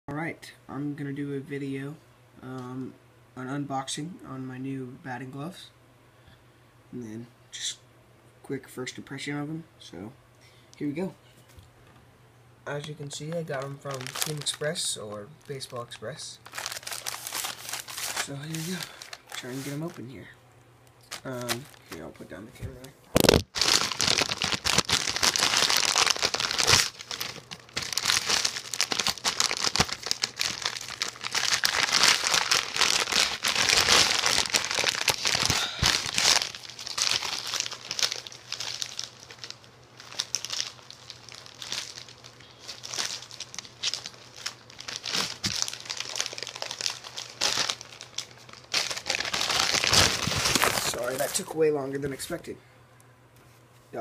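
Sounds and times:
package crinkling and rustling: 12.8 - 20.1, 21.0 - 52.4.

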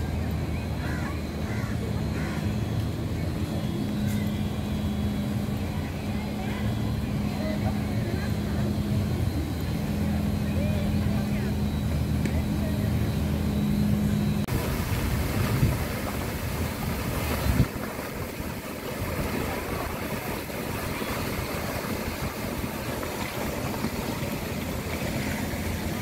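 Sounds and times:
fountain water splashing: 0.0 - 12.9, 14.5 - 26.0
low hum: 0.0 - 26.0.

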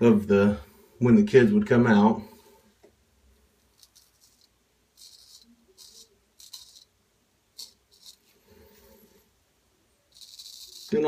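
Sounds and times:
razor scraping stubble: 3.7 - 6.9, 7.6 - 8.4, 10.1 - 11.0.

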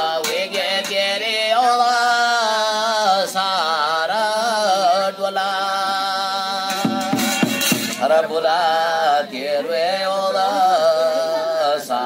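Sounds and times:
man singing chant: 0.0 - 12.0
percussive strike: 6.7 - 8.1.

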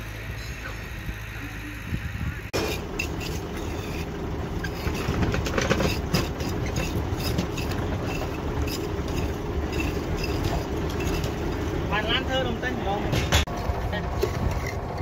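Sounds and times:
truck engine rumbling: 0.0 - 15.0
trowel scraping concrete: 2.6 - 11.4.

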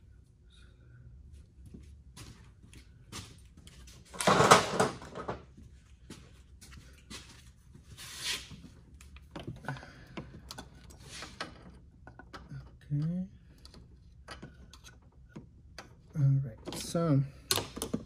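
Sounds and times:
tools clattering: 4.1 - 5.4.

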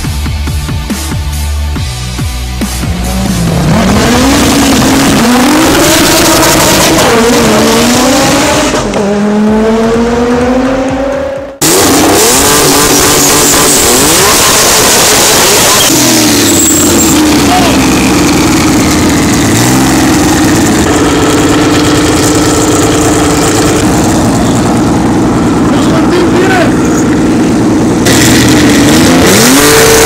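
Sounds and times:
drag car engines at full throttle: 1.3 - 30.0
race car engine at high revs: 2.7 - 30.0
tyre squeal: 12.6 - 17.9.

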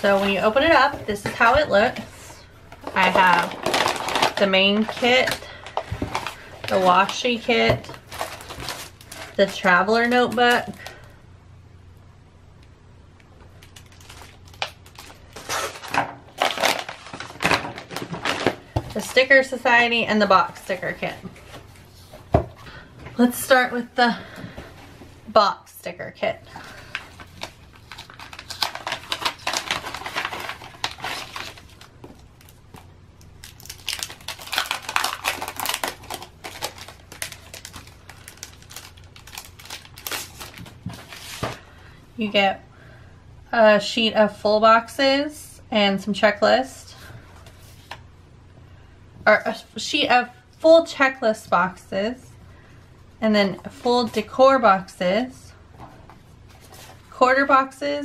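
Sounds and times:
plastic and paper crinkling: 0.0 - 2.1, 2.7 - 11.0, 13.5 - 19.4, 26.6 - 41.7.

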